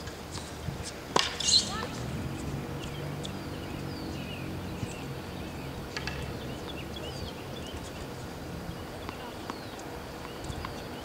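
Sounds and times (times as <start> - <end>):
small birds chirping: 0.3 - 11.0
steady low rumble: 1.6 - 9.3.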